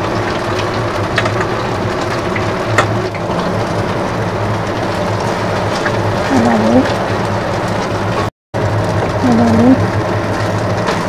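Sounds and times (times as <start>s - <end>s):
fish cakes sizzling in hot oil: 0.0s - 6.3s
oil pops and crackles: 0.1s - 3.7s.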